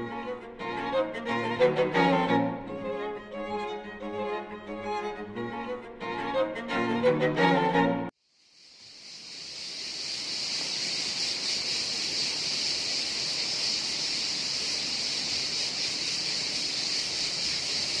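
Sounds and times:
cicada buzzing: 0:08.2 - 0:18.0.

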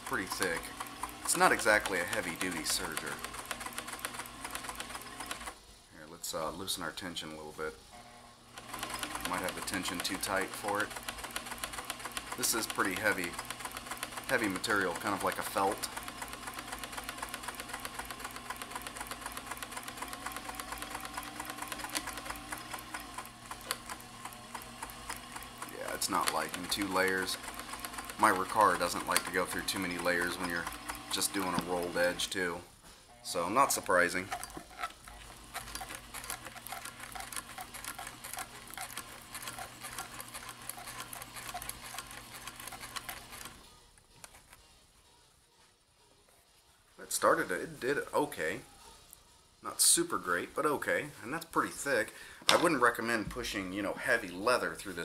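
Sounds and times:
overlock sewing machine clattering: 0:00.0 - 0:05.6, 0:08.6 - 0:32.4, 0:33.5 - 0:43.6.

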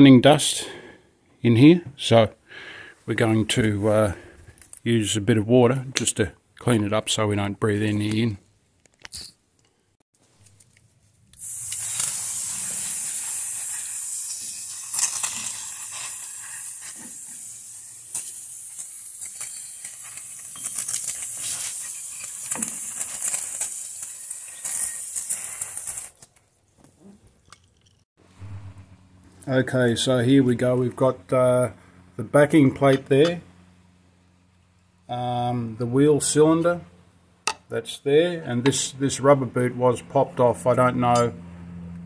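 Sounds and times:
water spraying: 0:11.4 - 0:26.2.

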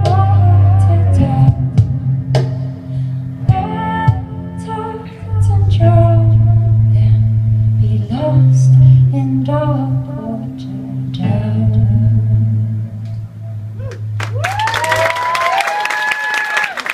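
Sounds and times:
woman singing: 0:00.0 - 0:02.0, 0:03.5 - 0:13.0
cello: 0:00.0 - 0:14.6.

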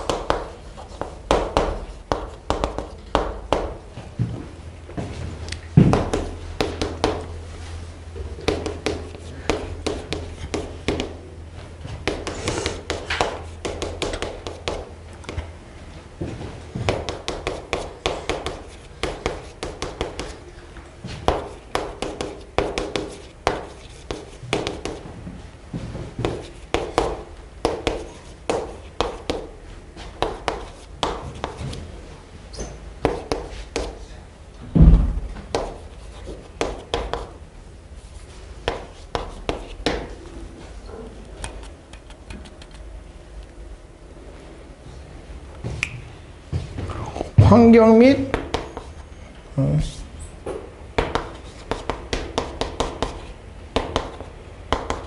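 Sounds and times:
chalk writing on chalkboard: 0:00.0 - 0:03.8, 0:05.9 - 0:07.7, 0:08.4 - 0:11.2, 0:12.0 - 0:15.4, 0:16.9 - 0:20.4, 0:21.1 - 0:25.1, 0:26.2 - 0:31.9, 0:32.6 - 0:34.1, 0:35.5 - 0:37.4, 0:38.0 - 0:40.2, 0:48.3 - 0:49.1, 0:51.0 - 0:55.0.

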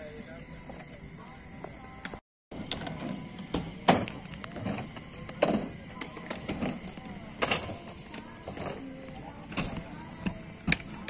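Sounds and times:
inline skate wheels rolling on concrete: 0:00.0 - 0:11.0
faint voices: 0:02.8 - 0:11.0.

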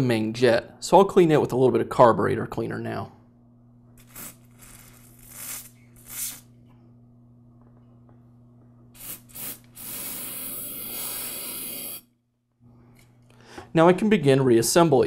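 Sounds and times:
aerosol spray hissing: 0:04.0 - 0:06.5, 0:09.0 - 0:12.0.

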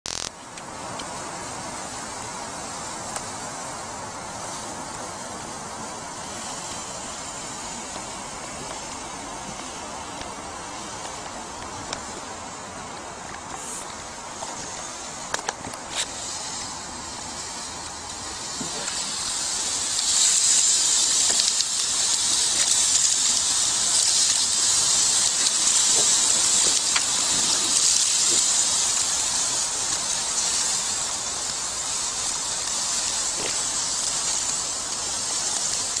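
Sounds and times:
sharp clicks: 0:00.1 - 0:01.0
sausages sizzling on grill: 0:00.1 - 0:36.0.

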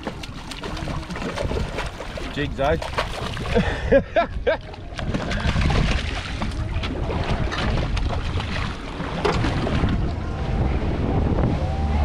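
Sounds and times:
fish thrashing at surface: 0:00.0 - 0:03.7, 0:04.9 - 0:10.0
water splashing against boat: 0:00.0 - 0:12.0
wind buffeting microphone: 0:00.0 - 0:12.0.

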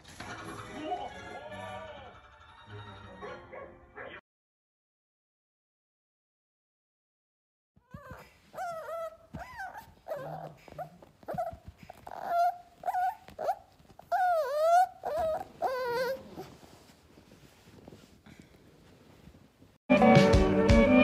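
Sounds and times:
puppy whining and yipping: 0:07.8 - 0:17.4.

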